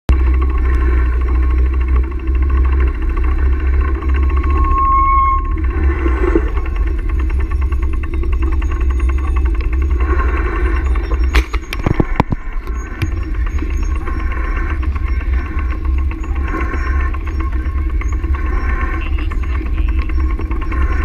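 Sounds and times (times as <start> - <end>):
wind buffeting microphone: 5.4 - 21.0.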